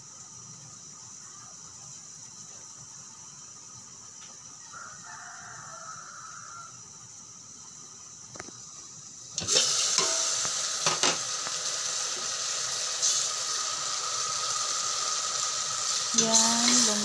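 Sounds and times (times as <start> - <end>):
chicken sizzling in fat: 0.0 - 17.0
pot lid coming off: 9.4 - 11.4.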